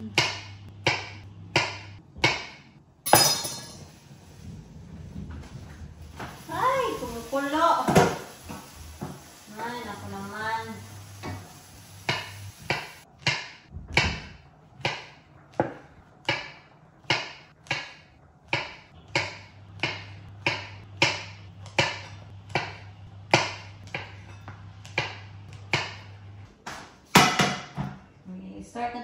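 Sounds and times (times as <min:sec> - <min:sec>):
knife chopping mushrooms: 0:12.1 - 0:26.1.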